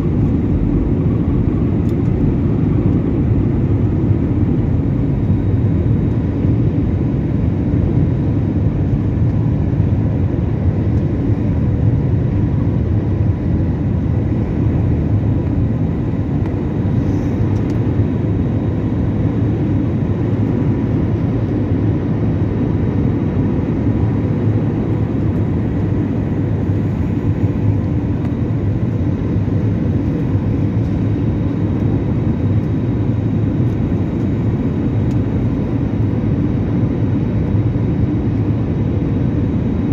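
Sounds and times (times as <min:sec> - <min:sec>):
jet engines rumbling in cabin: 0:00.0 - 0:39.9.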